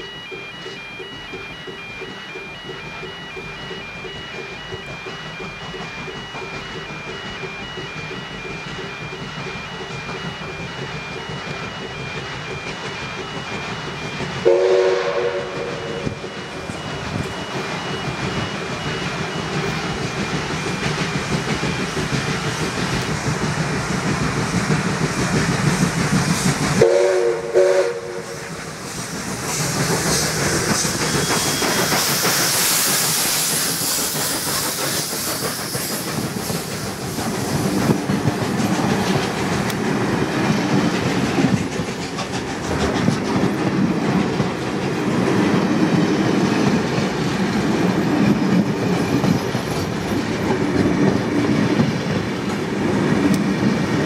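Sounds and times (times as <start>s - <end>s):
train wheels clacking over rails: 0.0s - 54.0s
steam hissing: 2.4s - 54.0s
steam whistle blast: 14.4s - 16.3s, 26.8s - 28.5s.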